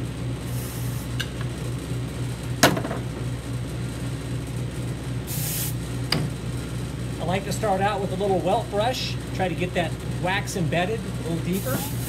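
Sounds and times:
wax hissing on spinning brush: 0.4s - 1.2s, 5.3s - 5.8s, 11.2s - 12.0s.

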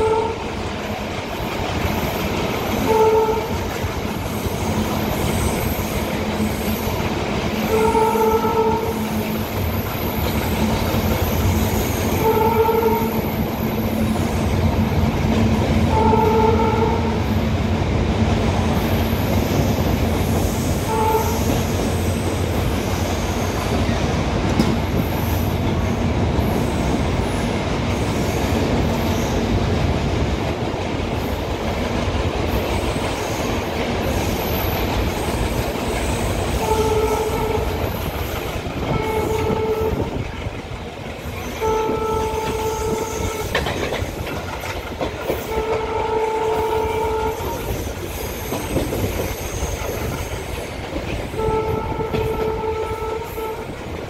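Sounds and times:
locomotive horn blasts: 0.0s - 0.6s, 2.8s - 3.7s, 7.6s - 9.4s, 12.1s - 13.4s, 15.9s - 17.2s, 20.8s - 21.7s, 36.6s - 38.0s, 38.8s - 40.3s, 41.6s - 43.7s, 45.4s - 47.8s, 51.4s - 53.8s
train clacking over rail joints: 0.0s - 54.0s.

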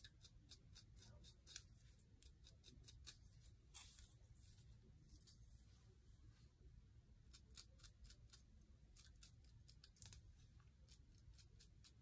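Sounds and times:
comb strokes through hair: 0.1s - 6.5s.

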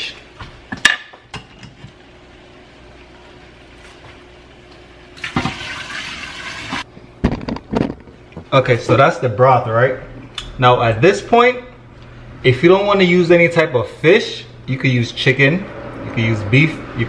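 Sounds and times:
water pouring into pot: 5.2s - 6.9s.

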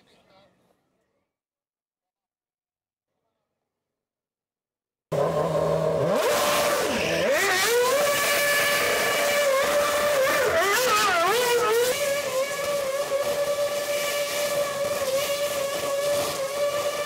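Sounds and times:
racing car engine revving: 5.1s - 17.0s.

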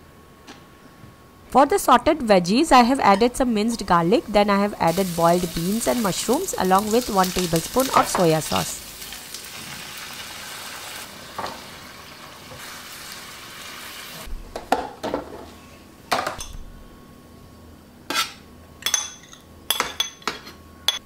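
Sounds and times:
food sizzling in a frying pan: 4.9s - 14.3s.

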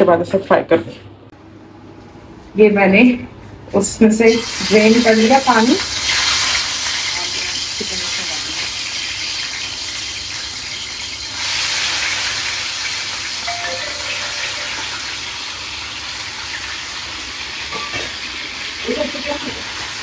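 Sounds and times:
chicken sizzling in hot oil: 4.3s - 13.4s, 14.8s - 20.0s.

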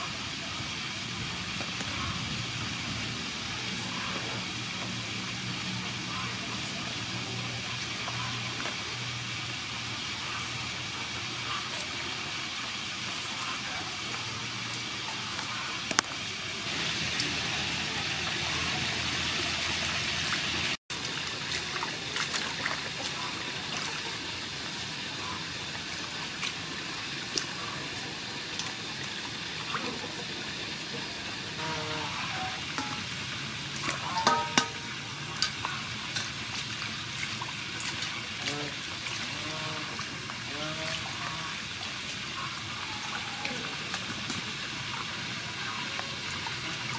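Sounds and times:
water splashing in a steel bowl: 0.0s - 46.9s
water poured into steel bowl: 32.7s - 39.3s
knocks on a metal bowl: 34.2s - 34.9s.

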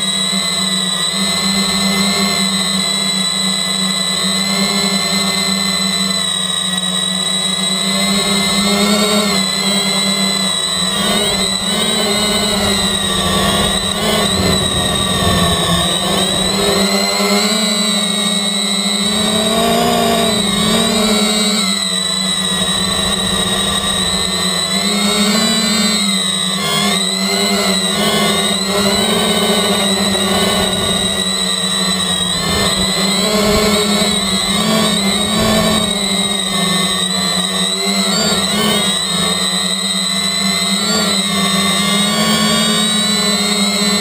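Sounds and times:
quadcopter motors whining: 0.0s - 44.0s
low rumble: 11.2s - 17.3s.

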